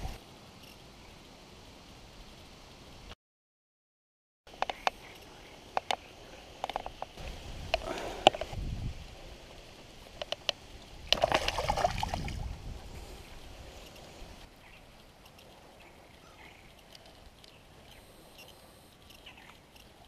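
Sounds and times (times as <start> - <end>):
water splashing: 11.0 - 12.8.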